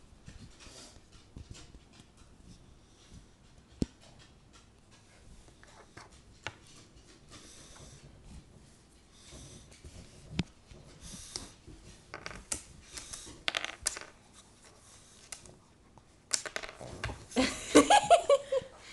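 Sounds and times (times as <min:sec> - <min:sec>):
dog sniffing and snuffling: 0:00.3 - 0:12.0, 0:14.2 - 0:16.2.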